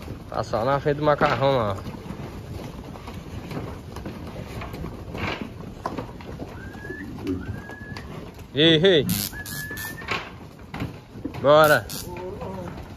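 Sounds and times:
cattle hooves clattering: 0.0s - 12.9s
short high whistle-like tone: 9.1s - 10.1s.

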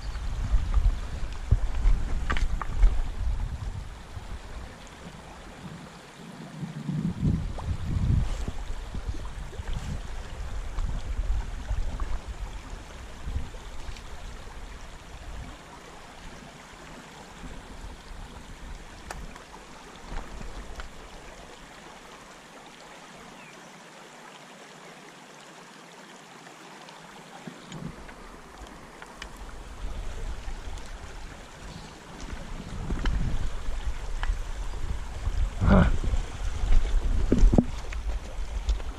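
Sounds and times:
wind buffeting microphone: 0.0s - 5.8s, 6.5s - 15.6s, 29.2s - 38.9s
river rushing over stones: 0.0s - 38.9s.

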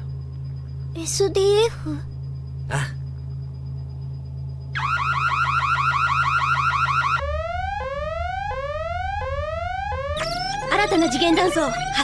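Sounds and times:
steady low hum: 0.0s - 12.0s
rapid warbling alarm tone: 2.1s - 12.0s
upward sweeping alarm tone: 4.7s - 12.0s.

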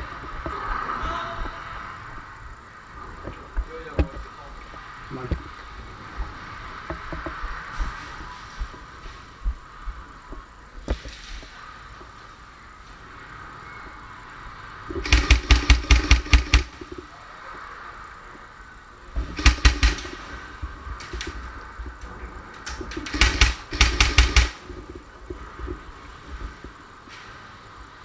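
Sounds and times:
airsoft rifle bursts: 15.0s - 16.8s, 19.3s - 20.3s, 23.0s - 24.6s.

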